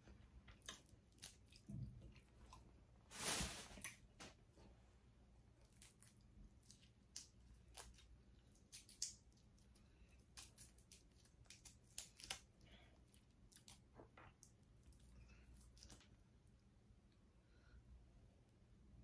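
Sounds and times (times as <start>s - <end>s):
shells cracking and snapping: 5.8s - 12.5s.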